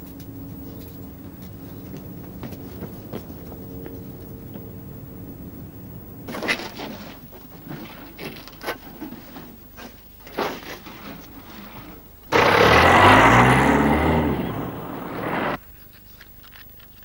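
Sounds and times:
car engine revving: 0:12.3 - 0:15.6.

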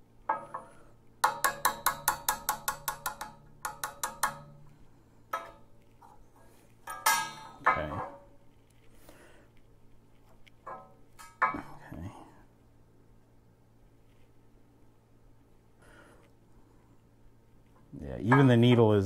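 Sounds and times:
hammer tapping steel punch: 0:00.3 - 0:05.7
metal clatter: 0:06.8 - 0:08.4.

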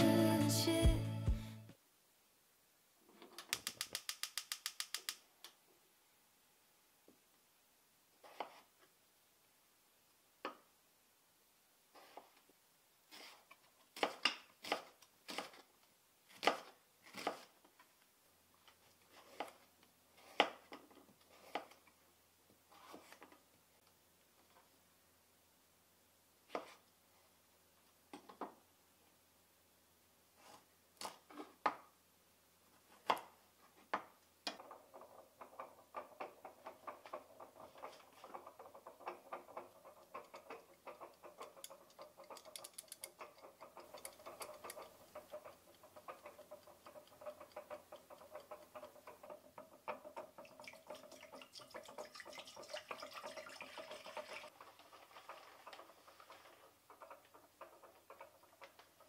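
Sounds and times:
scattered clicks and knocks: 0:03.2 - 0:05.3, 0:34.4 - 0:59.0
mechanical kitchen timer ticking: 0:35.4 - 0:59.0
water pouring into pot: 0:46.3 - 0:57.7.

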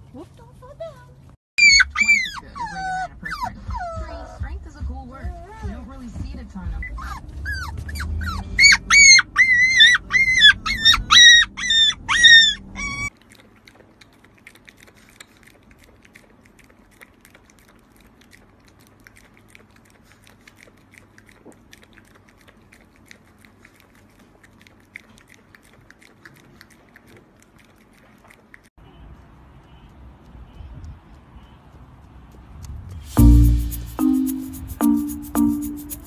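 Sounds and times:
puppy whining: 0:01.6 - 0:04.5, 0:06.8 - 0:17.2
dog licking and lapping: 0:13.0 - 0:28.7.

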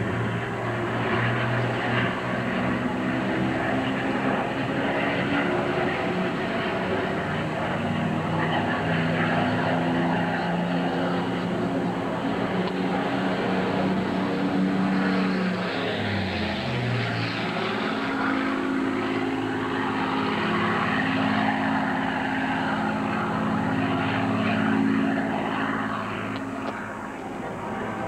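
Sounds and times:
propeller plane engine droning: 0:00.0 - 0:28.0.

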